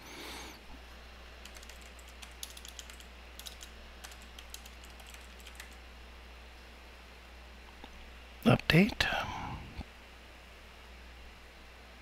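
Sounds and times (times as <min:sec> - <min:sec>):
low steady hum: 0:00.0 - 0:12.0
typing on computer keyboard: 0:01.4 - 0:05.8.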